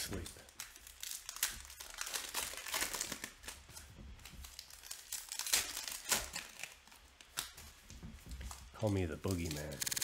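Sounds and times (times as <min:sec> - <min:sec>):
foil pack crinkling and tearing: 0:00.0 - 0:07.6.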